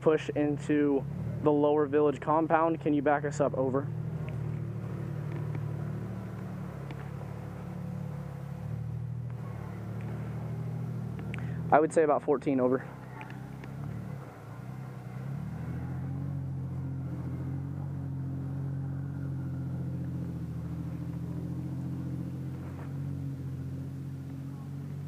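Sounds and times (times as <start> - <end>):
engine running steadily: 0.0 - 25.0.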